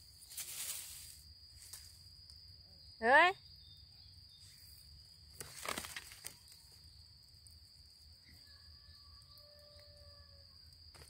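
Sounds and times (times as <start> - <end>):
dry leaves rustling: 0.0 - 2.1, 5.4 - 6.8
insects buzzing: 0.0 - 11.0.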